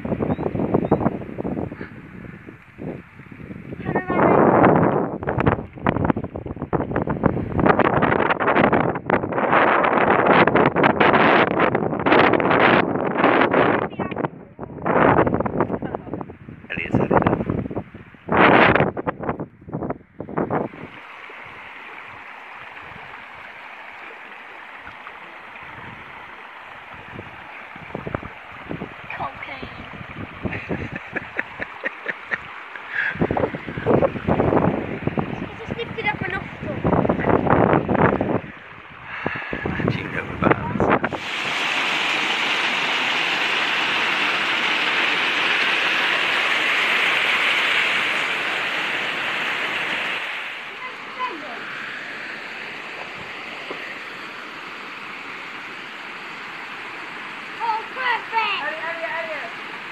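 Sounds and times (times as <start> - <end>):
stream running over rocks: 0.0 - 59.9
small waterfall rushing: 20.3 - 59.9.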